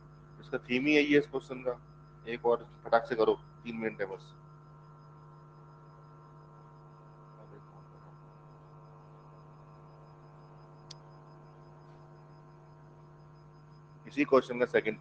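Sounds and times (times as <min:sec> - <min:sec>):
electrical mains hum: 0:00.0 - 0:15.0
faint click: 0:10.8 - 0:11.1.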